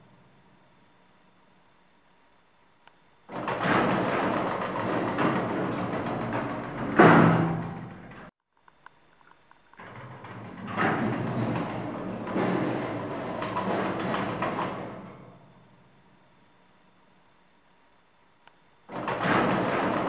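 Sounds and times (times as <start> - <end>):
lift doors rattling open: 3.3 - 8.3, 9.8 - 15.8, 18.9 - 20.0
lift doors rumbling and banging shut: 3.3 - 8.3, 9.8 - 16.0, 18.9 - 20.0.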